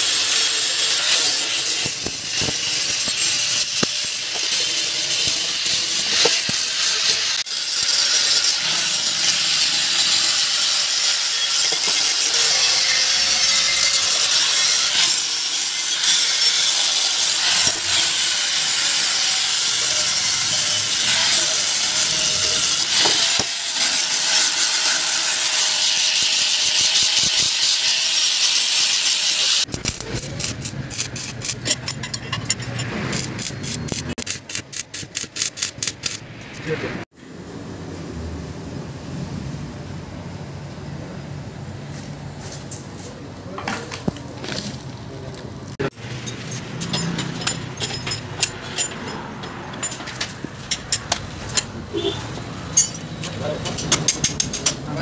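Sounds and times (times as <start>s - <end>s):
angle grinder grinding metal: 0.0s - 36.8s.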